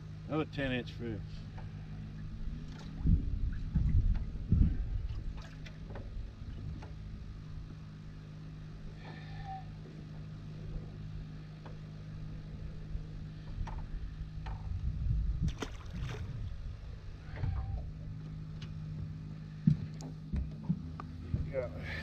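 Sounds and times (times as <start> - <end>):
steady low hum: 0.0 - 22.0
fish splashing into water: 15.5 - 16.4.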